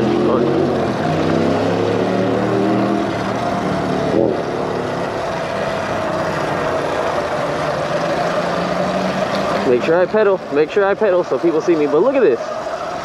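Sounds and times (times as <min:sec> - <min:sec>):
steady pitched hum: 0:00.0 - 0:13.0
wind and road noise: 0:00.0 - 0:13.0.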